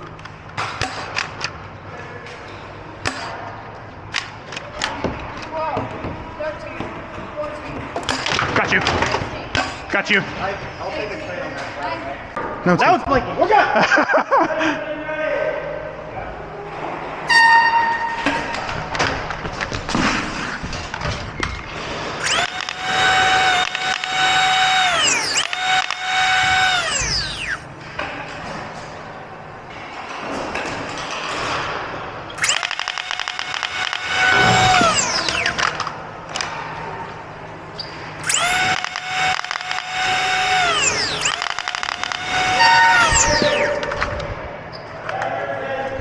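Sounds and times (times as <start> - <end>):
toy blaster motors whining: 22.2 - 27.6, 32.4 - 35.9, 38.2 - 44.2.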